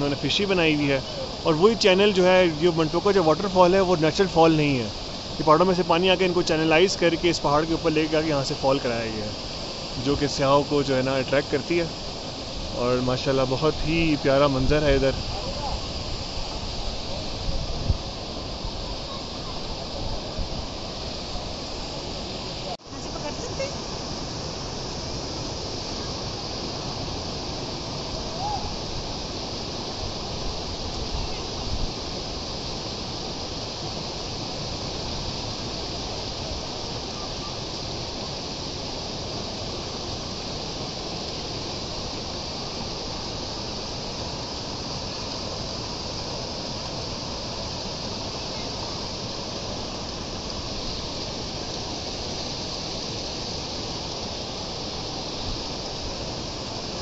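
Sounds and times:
water rushing from pipes: 0.0s - 57.0s.

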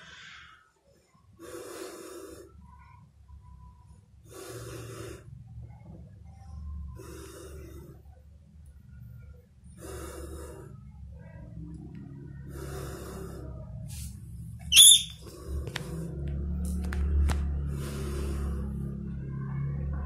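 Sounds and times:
low steady hum: 0.0s - 20.0s
high sharp squeak: 14.7s - 15.2s.

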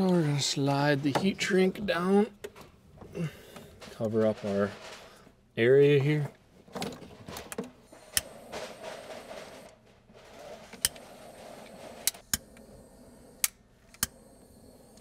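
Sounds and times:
butane torch hissing: 7.9s - 9.7s, 10.6s - 15.0s.

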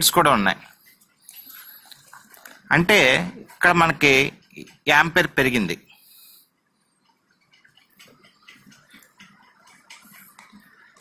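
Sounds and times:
small ticks: 6.9s - 11.0s.

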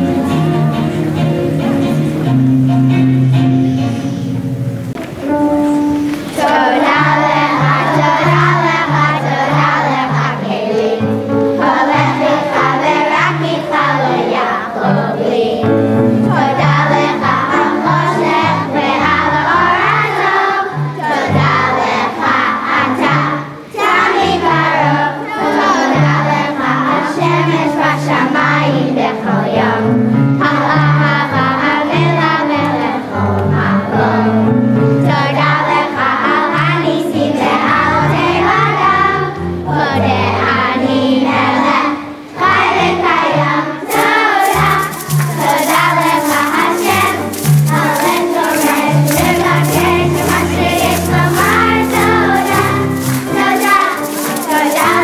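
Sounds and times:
instrumental accompaniment: 0.0s - 27.6s, 42.5s - 55.0s
children's choir singing: 5.0s - 55.0s.

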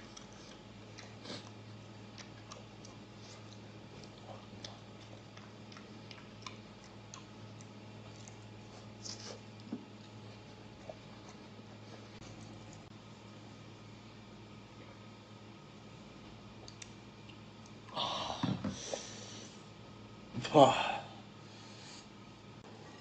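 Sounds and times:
person chewing: 0.0s - 12.9s, 16.6s - 18.0s
steady low hum: 0.0s - 23.0s
wet mouth clicks and lip smacks: 16.6s - 17.8s.

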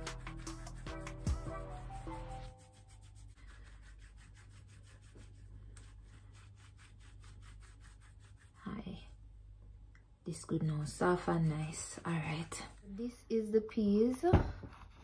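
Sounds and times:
soft scratchy rubbing strokes: 1.8s - 9.3s, 11.0s - 13.2s.

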